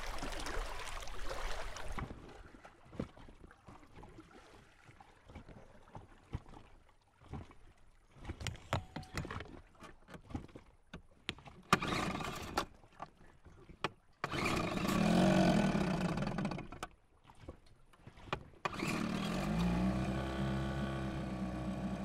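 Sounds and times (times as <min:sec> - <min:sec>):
water lapping at hull: 0:00.0 - 0:22.0
gear knocking in dinghy: 0:08.1 - 0:22.0.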